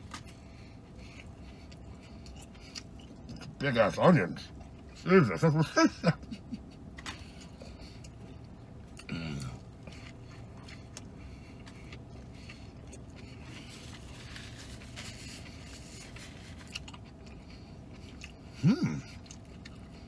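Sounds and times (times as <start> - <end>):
man chewing food: 0.0 - 5.5, 6.2 - 20.0.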